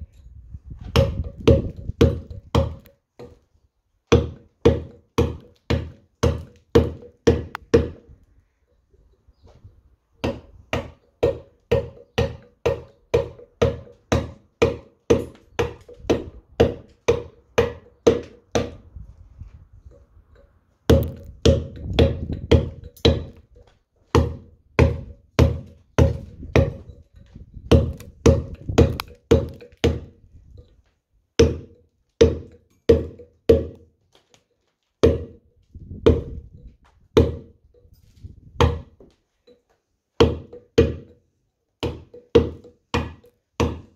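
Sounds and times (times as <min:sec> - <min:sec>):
mallet striking chisel on stone: 0:00.9 - 0:03.4, 0:04.1 - 0:08.1, 0:10.2 - 0:18.8, 0:20.9 - 0:23.4, 0:24.1 - 0:27.0, 0:27.7 - 0:30.2, 0:31.4 - 0:33.9, 0:35.0 - 0:35.4, 0:37.2 - 0:37.6, 0:38.6 - 0:41.2, 0:41.8 - 0:43.9.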